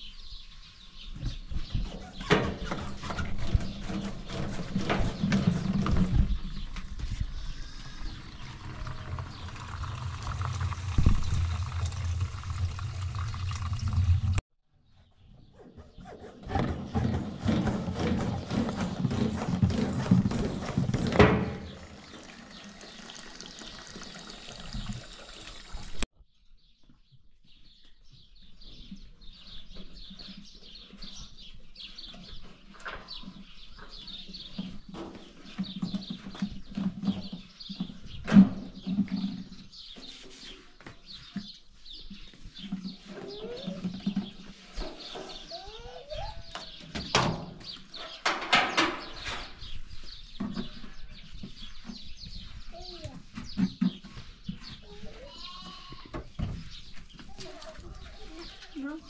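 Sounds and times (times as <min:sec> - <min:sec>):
birds chirping: 0:00.0 - 0:14.2, 0:14.9 - 0:59.0
low hum: 0:07.5 - 0:14.4
liquid gushing through a hose: 0:07.8 - 0:14.4, 0:21.7 - 0:26.0.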